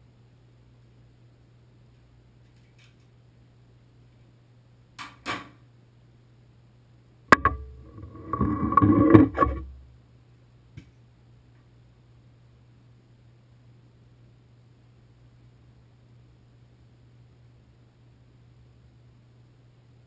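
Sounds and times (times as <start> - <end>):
low steady hum: 5.6 - 20.0
clattering and scraping: 7.3 - 9.8.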